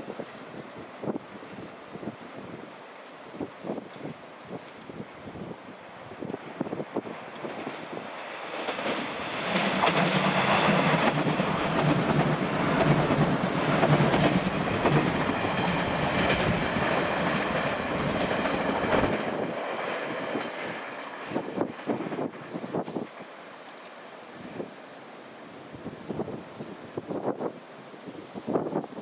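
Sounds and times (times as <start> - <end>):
train low hum: 4.6 - 27.4
train wheels clacking: 7.2 - 22.4.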